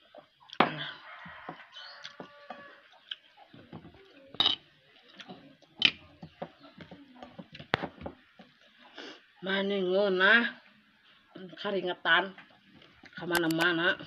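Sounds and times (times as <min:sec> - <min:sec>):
mouth eating noises: 0:02.0 - 0:06.2.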